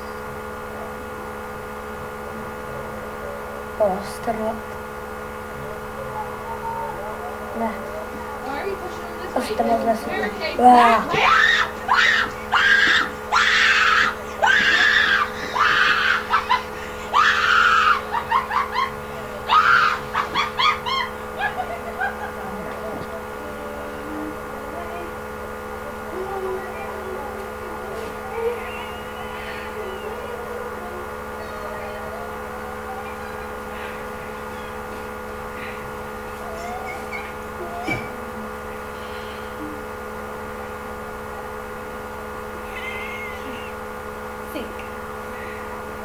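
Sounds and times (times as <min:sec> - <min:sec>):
electrical hum: 0:00.0 - 0:46.0
person screaming in fright: 0:10.8 - 0:21.2
faint wavering tones: 0:18.9 - 0:42.3.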